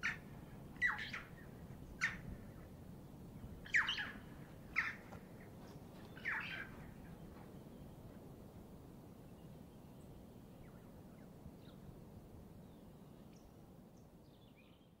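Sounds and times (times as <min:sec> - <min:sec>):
high bird calls: 0:00.0 - 0:02.3, 0:03.6 - 0:05.1, 0:06.0 - 0:07.3.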